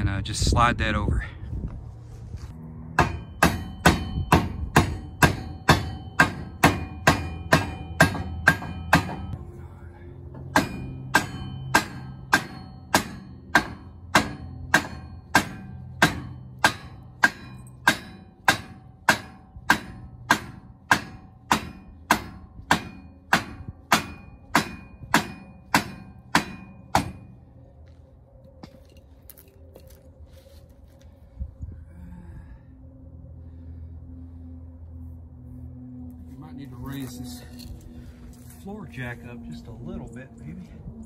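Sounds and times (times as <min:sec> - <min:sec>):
hammer striking wooden block: 0:03.0 - 0:09.4, 0:10.5 - 0:27.2.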